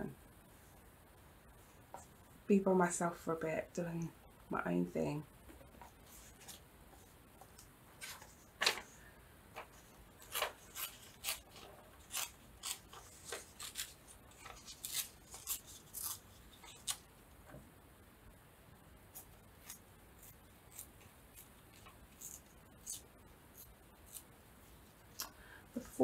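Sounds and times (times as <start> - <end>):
paper rustling: 5.7 - 17.0.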